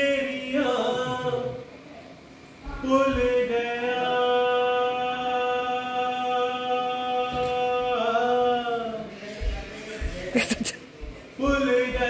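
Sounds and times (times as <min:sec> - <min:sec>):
man singing a long held note: 0:02.8 - 0:09.1.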